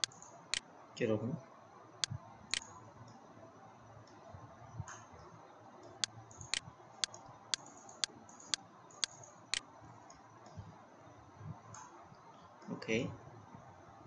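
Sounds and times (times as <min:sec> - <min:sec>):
computer mouse clicking: 0:00.0 - 0:00.6, 0:06.3 - 0:10.2.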